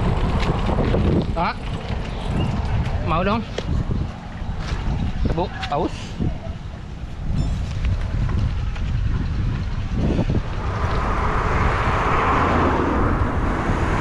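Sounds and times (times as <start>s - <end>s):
wind rumbling on microphone: 0.0s - 14.0s
motor vehicle passing: 8.6s - 14.0s.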